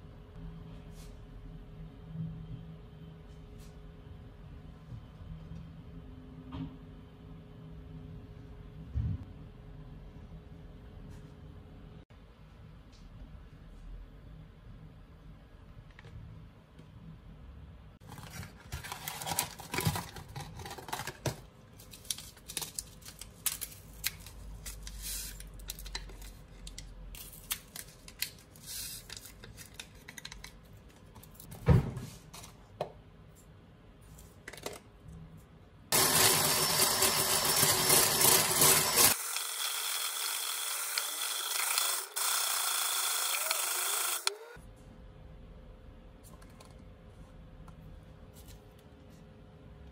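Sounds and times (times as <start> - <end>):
electric hand blender whisking: 35.9 - 44.6.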